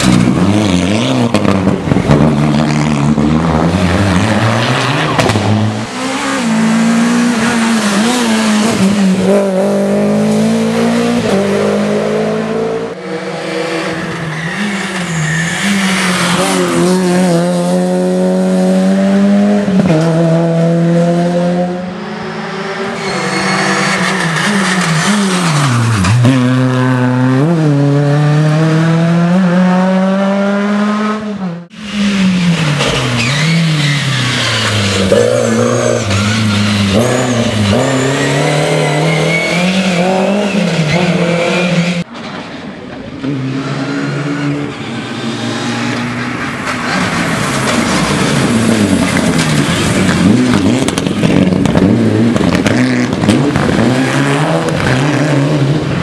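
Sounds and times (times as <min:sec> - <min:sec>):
rally car engines revving: 0:00.0 - 0:56.0
tyre squeal: 0:22.9 - 0:27.0, 0:32.4 - 0:42.0.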